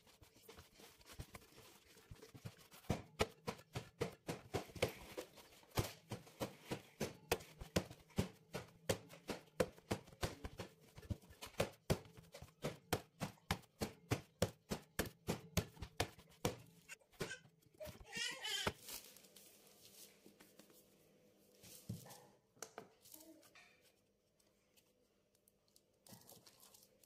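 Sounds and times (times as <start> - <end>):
dough slapping in metal pot: 0.0 - 18.0.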